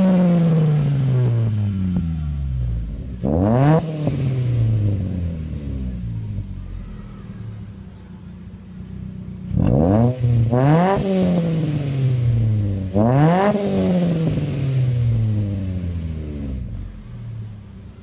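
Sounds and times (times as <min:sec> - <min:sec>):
car engine revving and idling: 0:00.0 - 0:18.0.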